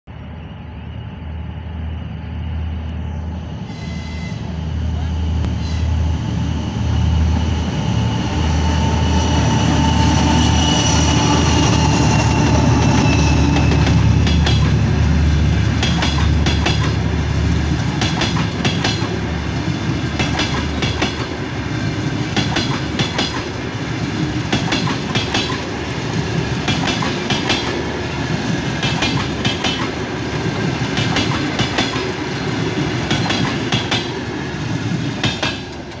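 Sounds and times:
diesel locomotive engine drone: 0.1 - 36.0
train wheels clickety-clack: 9.2 - 36.0.

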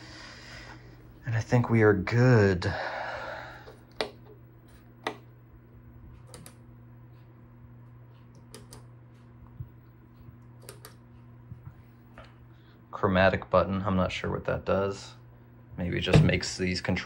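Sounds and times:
steady low hum: 0.0 - 17.0
soft clicks: 6.2 - 6.6, 7.8 - 11.0.

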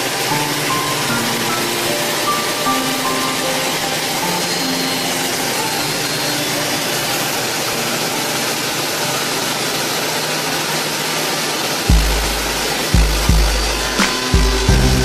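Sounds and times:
machine rushing noise: 0.0 - 15.0.

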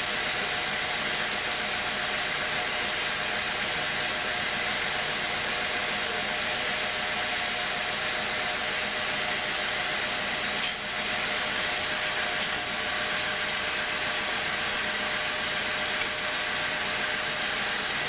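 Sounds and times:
sawmill machine humming: 0.0 - 18.0.

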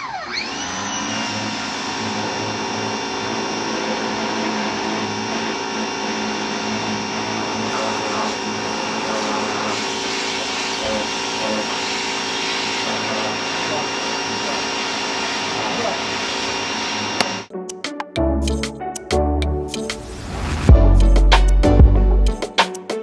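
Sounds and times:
vacuum cleaner whining: 0.0 - 17.5.

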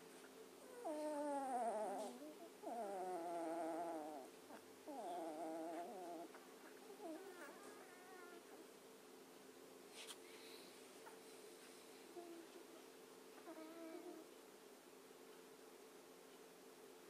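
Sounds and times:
faint steady hum: 0.0 - 17.0
puppies whimpering: 4.9 - 8.5.

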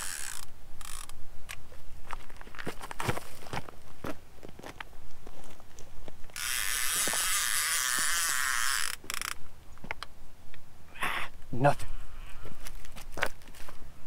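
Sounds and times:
fishing reel whirring: 0.0 - 1.2, 6.4 - 9.4
footsteps crunching on rocks: 1.7 - 6.4, 12.3 - 13.8.

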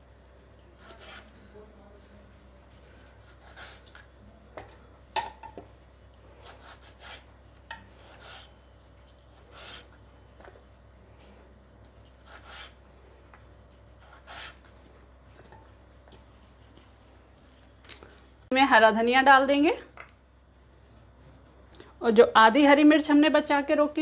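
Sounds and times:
tomato pieces scraping on wooden board: 0.8 - 1.3, 14.0 - 14.6.

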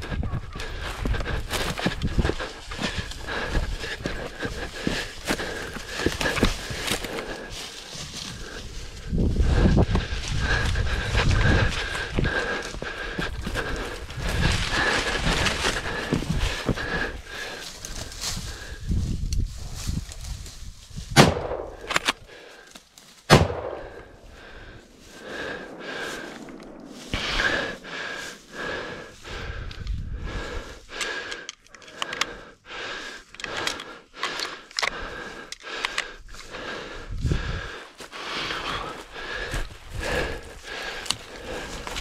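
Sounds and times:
branches and leaves rustling: 0.0 - 31.0, 37.4 - 42.0
rifle shots: 23.3 - 23.9.

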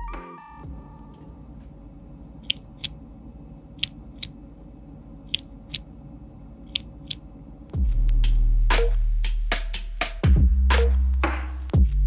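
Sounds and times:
keyboard switch clicking: 2.4 - 3.0.

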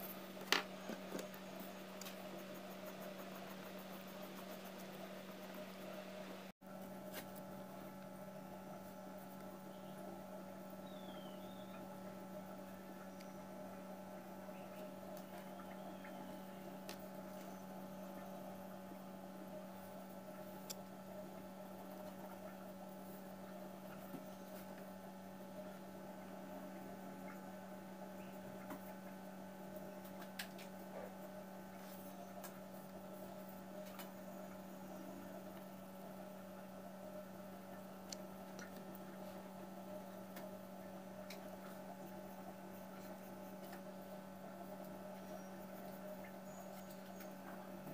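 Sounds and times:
low electrical hum: 0.0 - 47.9
pencil scratching on paper: 2.0 - 6.0.

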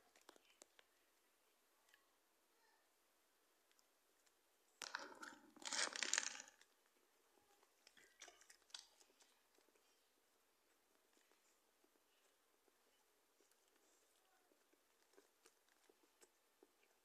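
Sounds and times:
plastic bag crinkling: 4.8 - 6.8.

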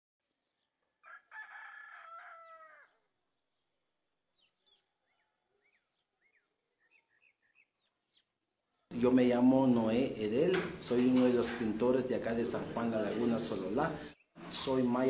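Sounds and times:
rooster crowing: 1.0 - 3.1.

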